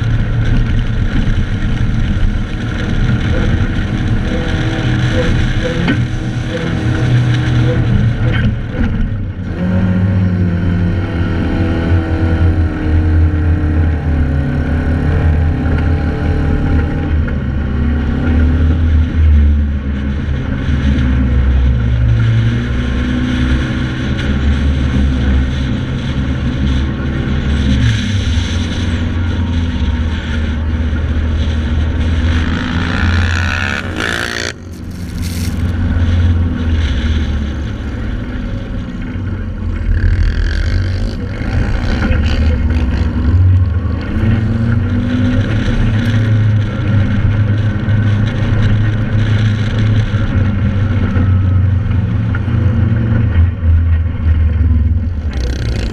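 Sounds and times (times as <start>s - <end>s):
sand rail engine under load: 26.2s - 47.9s, 48.5s - 55.9s.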